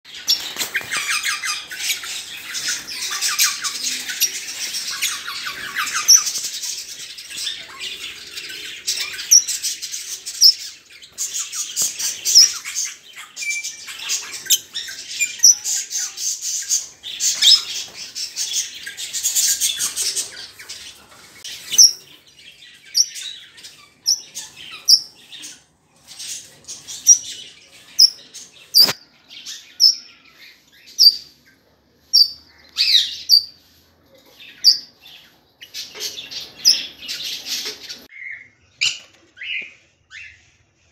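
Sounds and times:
parrots chattering and squawking: 0:00.1 - 0:29.0.

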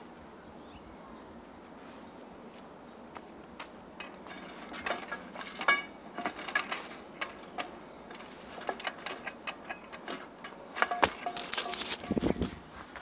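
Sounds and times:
chain-link fence rattling: 0:04.0 - 0:12.3.

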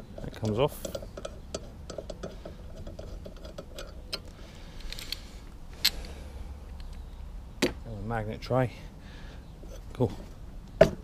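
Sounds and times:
small metal clicks and rattles: 0:00.0 - 0:07.0.

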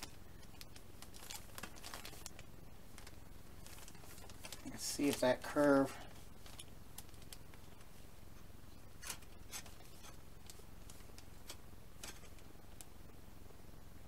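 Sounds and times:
plastic bags crinkling: 0:00.0 - 0:07.9
steady low hum: 0:00.0 - 0:14.0.

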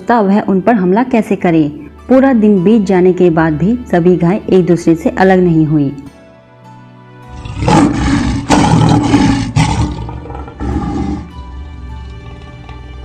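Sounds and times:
soft background music: 0:00.0 - 0:13.0
lion roaring: 0:07.3 - 0:11.3.

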